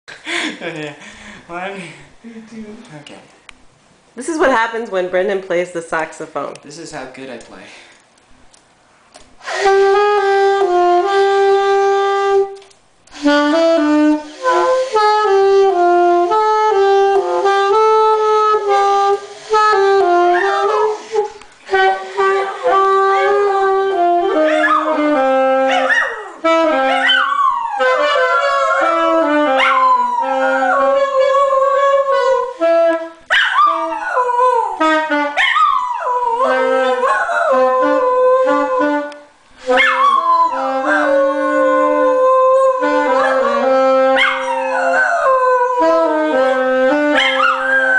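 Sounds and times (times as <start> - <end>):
saxophone slow melody: 9.4 - 47.9
dog howling: 24.3 - 32.5, 33.3 - 39.1, 39.7 - 47.9.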